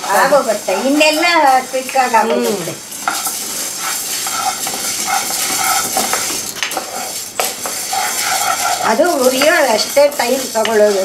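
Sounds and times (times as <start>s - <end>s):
lentils rustling in pan: 0.0s - 11.0s
spatula scraping pan: 0.0s - 11.0s.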